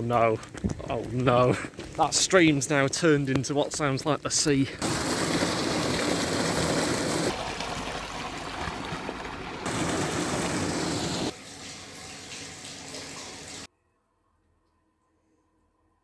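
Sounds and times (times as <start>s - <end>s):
stream rushing and splashing: 8.6s - 11.4s.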